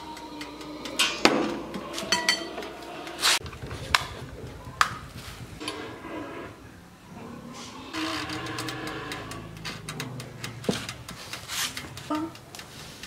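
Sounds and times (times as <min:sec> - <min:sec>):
metal tray clinking: 0:01.0 - 0:02.8.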